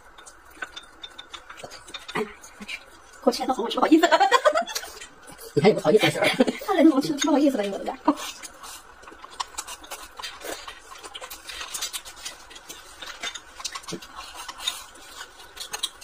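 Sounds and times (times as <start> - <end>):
chewing: 0.0 - 3.8, 7.0 - 16.0.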